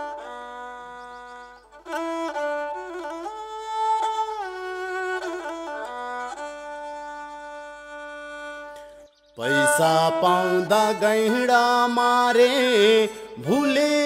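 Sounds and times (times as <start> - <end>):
bowed fiddle playing folk melody: 0.0 - 14.0.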